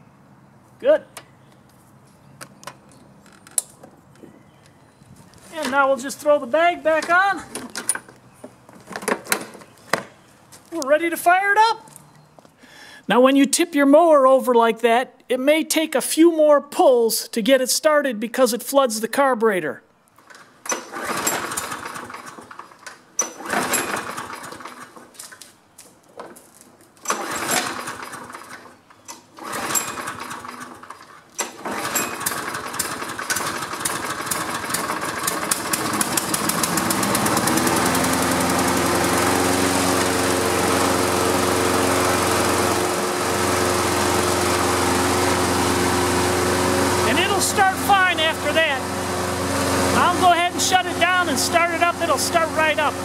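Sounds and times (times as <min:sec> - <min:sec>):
lawn mower engine pull-starting: 0:02.5 - 0:03.9, 0:05.3 - 0:10.0, 0:20.2 - 0:25.6, 0:26.2 - 0:53.0
lawn mower engine running: 0:05.4 - 0:09.7, 0:20.2 - 0:25.2, 0:27.0 - 0:53.0.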